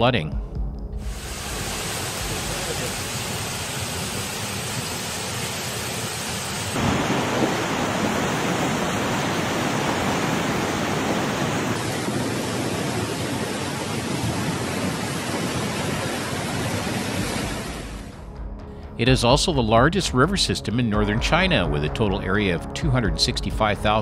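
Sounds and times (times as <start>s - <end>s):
heavy rain: 1.0s - 18.2s
rushing floodwater: 1.1s - 18.1s.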